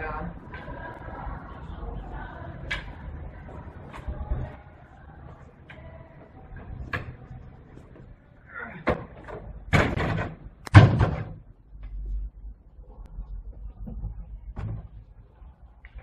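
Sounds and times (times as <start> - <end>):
door banging shut: 8.8 - 11.4.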